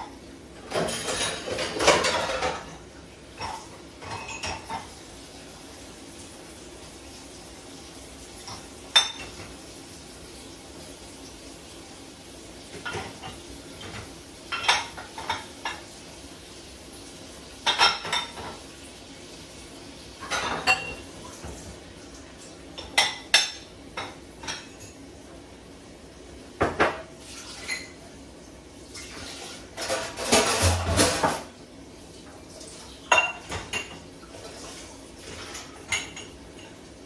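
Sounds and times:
dishes clinking in dishwasher rack: 0:00.0 - 0:05.0, 0:08.4 - 0:09.6, 0:12.7 - 0:15.9, 0:17.6 - 0:18.7, 0:20.2 - 0:25.1, 0:26.6 - 0:28.1, 0:29.0 - 0:31.6, 0:32.6 - 0:37.0.

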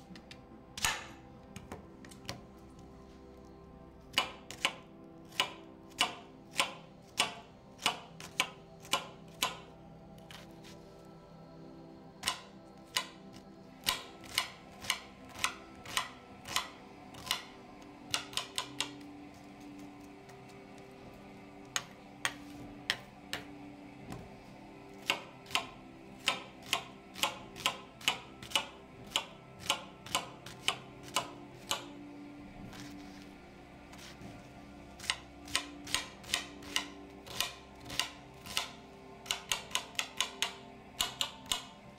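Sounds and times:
knife chopping on cutting board: 0:04.1 - 0:09.6, 0:25.0 - 0:31.9, 0:35.0 - 0:40.4.

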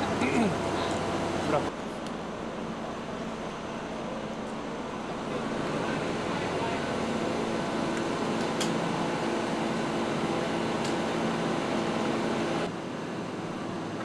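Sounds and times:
construction machinery engines droning: 0:00.0 - 0:14.0.

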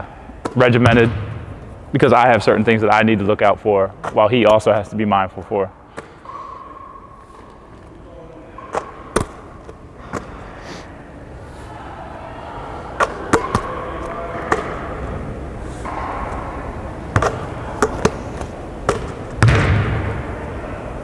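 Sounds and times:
low hum of a gym: 0:00.0 - 0:21.0
basketball bouncing on wooden floor: 0:18.9 - 0:20.0.

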